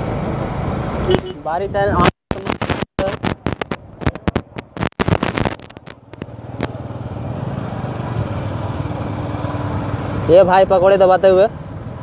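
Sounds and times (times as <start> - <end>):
vehicle engine hum: 0.0 - 12.0
choppy broken-up noise: 1.7 - 7.0.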